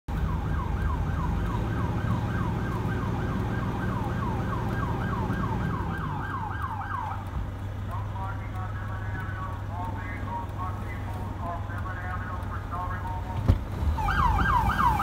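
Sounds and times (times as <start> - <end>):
police siren yelping: 0.1 - 7.4, 13.8 - 15.0
vehicle engine rumble: 0.1 - 15.0.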